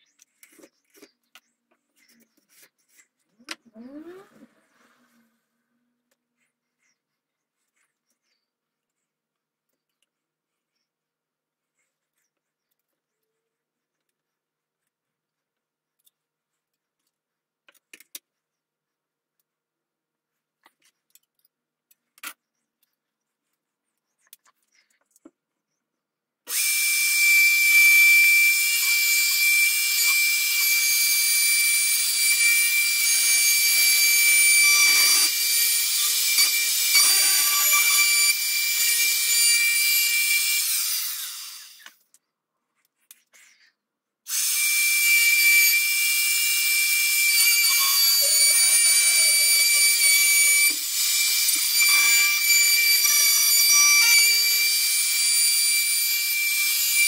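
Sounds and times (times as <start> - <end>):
router whining: 26.5 - 42.0, 44.3 - 57.0.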